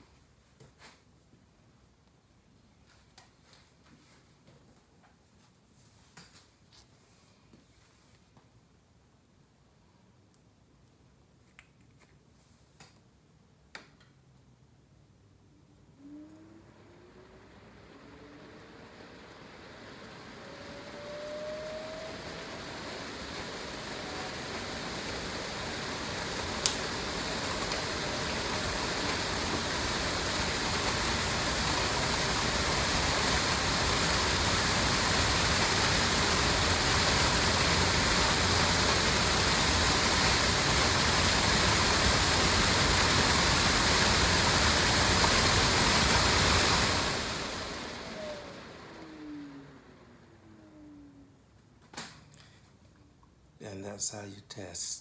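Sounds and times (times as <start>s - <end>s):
blower motor whining: 15.8s - 51.5s
rush of air: 18.3s - 49.7s.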